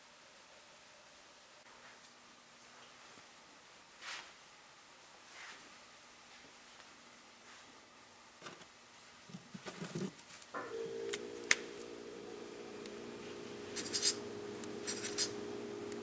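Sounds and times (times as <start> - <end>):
low drone of held tones: 10.6 - 16.0.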